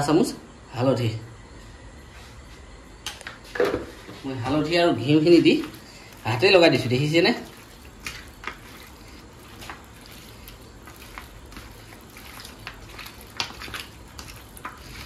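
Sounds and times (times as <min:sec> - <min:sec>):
wet squelches of meat kneaded: 0:05.2 - 0:15.0.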